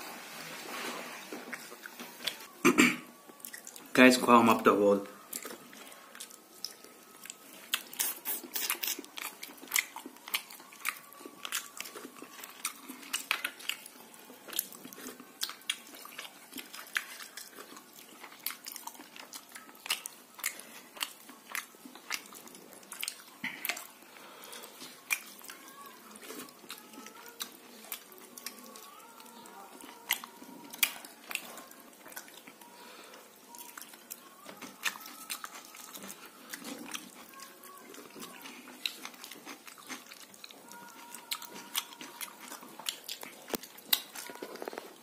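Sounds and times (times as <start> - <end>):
person chewing with clicks: 1.5 - 4.0, 5.2 - 45.0.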